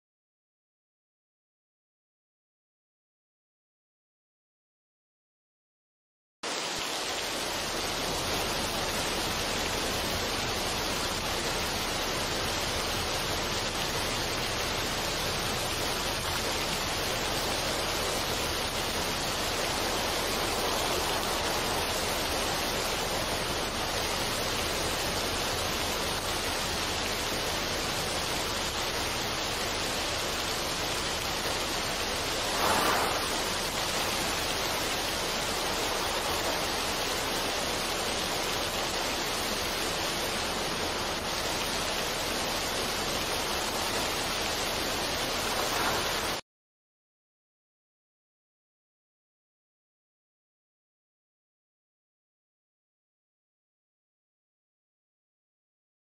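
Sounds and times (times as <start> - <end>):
waterfall splashing onto rock: 6.5 - 46.4.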